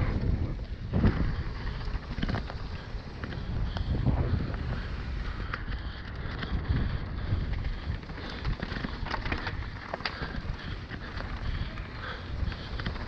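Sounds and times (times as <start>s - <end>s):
bike clicks and rattles: 0.0s - 13.0s
tyres rolling over dirt: 0.0s - 13.0s
wind buffeting microphone: 0.0s - 13.0s.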